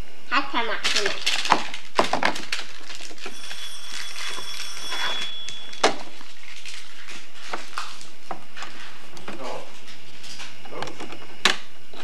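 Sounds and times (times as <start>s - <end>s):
high electronic tone: 3.2s - 6.3s.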